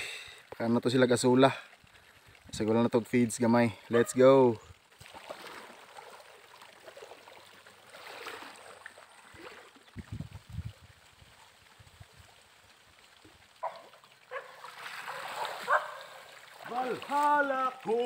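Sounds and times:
water trickling into pond: 0:00.0 - 0:18.0
person wading through water: 0:04.8 - 0:12.4, 0:13.1 - 0:18.0.

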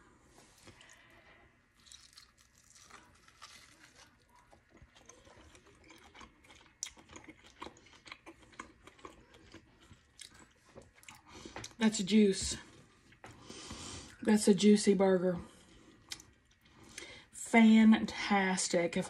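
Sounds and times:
chewing food: 0:00.4 - 0:11.8, 0:15.6 - 0:17.1.

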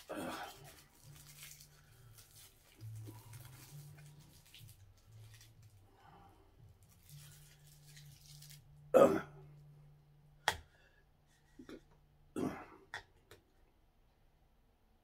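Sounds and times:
straw wrapper crinkling: 0:00.0 - 0:08.9
low steady hum: 0:00.0 - 0:15.0
man clearing his throat: 0:08.9 - 0:09.4, 0:12.4 - 0:12.8.

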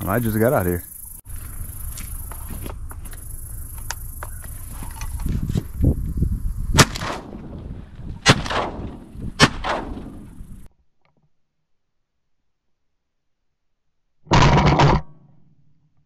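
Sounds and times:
wind rumble on microphone: 0:01.3 - 0:10.7
shotgun shots: 0:06.7 - 0:07.6, 0:08.2 - 0:10.4.

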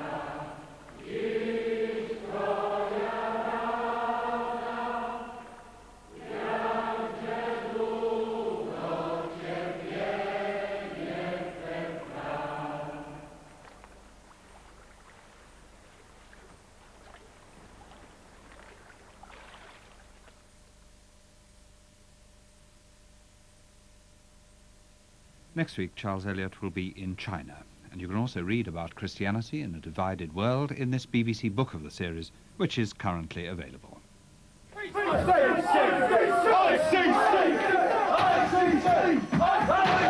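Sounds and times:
choir singing held notes: 0:00.0 - 0:13.6, 0:34.8 - 0:40.0.

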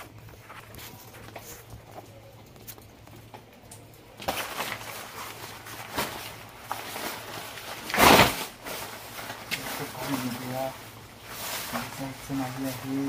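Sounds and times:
raincoat fabric rustling: 0:04.3 - 0:13.0.

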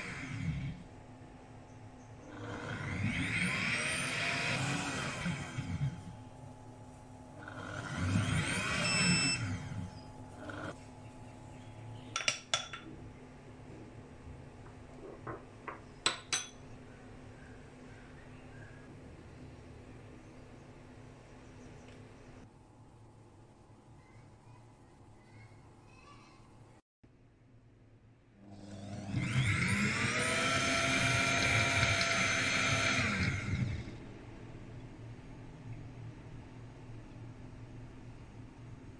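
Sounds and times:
blender motor whining: 0:00.0 - 0:01.0, 0:02.3 - 0:06.3, 0:07.4 - 0:10.8, 0:28.4 - 0:34.0.

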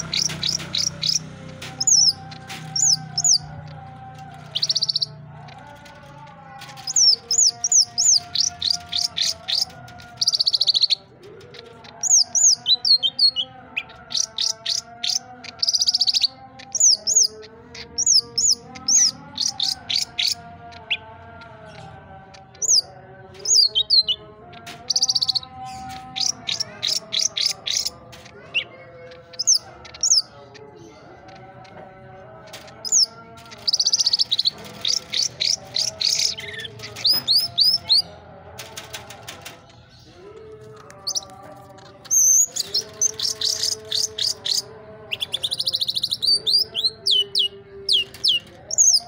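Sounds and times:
bird chirping and trilling: 0:00.0 - 0:31.8, 0:32.4 - 0:49.0.

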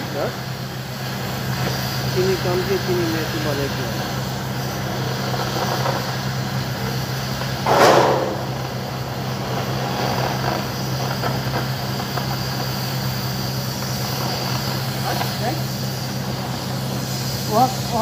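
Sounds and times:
cutting torch hissing: 0:00.0 - 0:18.0
low machine hum: 0:06.7 - 0:12.1.

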